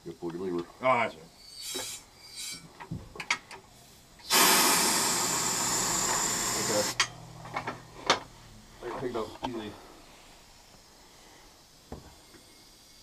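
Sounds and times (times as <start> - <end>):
air jack valve hissing: 1.6 - 2.7, 4.2 - 7.0.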